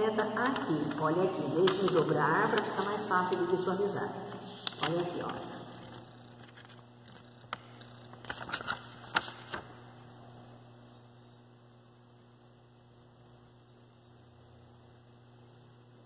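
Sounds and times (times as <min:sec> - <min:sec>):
faint low hum: 0:00.0 - 0:16.0
paper crackling: 0:00.4 - 0:09.8.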